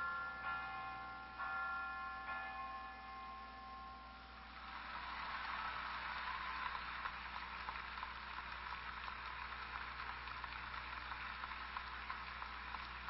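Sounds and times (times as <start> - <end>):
crowd applause over loudspeaker: 4.5 - 13.0.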